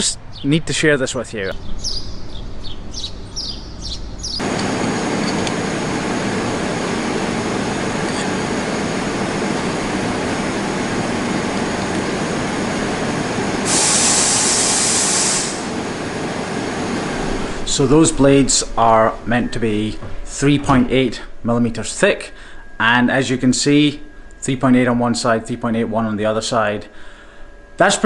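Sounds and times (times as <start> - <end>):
birds chirping: 0.0 - 13.6
machinery running: 2.4 - 28.0
loud high hiss: 4.4 - 19.9
faint steady tones: 15.8 - 28.0.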